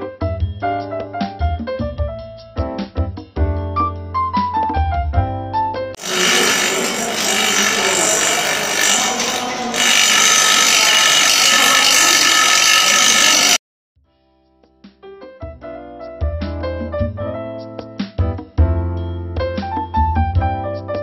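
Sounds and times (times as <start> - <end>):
bench grinder grinding metal: 6.0 - 13.6.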